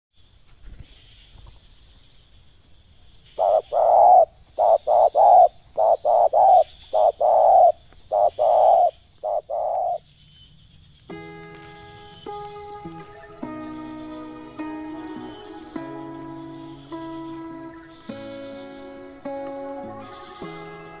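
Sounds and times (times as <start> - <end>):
dove cooing: 3.4 - 10.0, 11.6 - 21.0.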